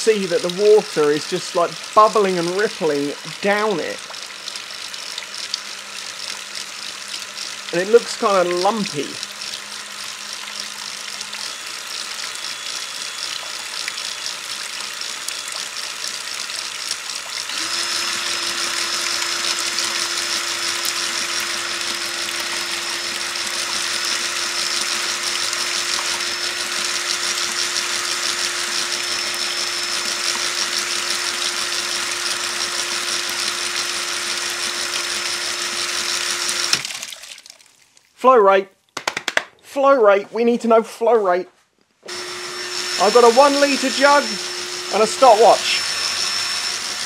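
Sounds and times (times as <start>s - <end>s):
drill motor whine: 0.0s - 36.8s, 42.0s - 47.0s
water spraying and splashing: 0.1s - 24.1s, 36.7s - 38.0s.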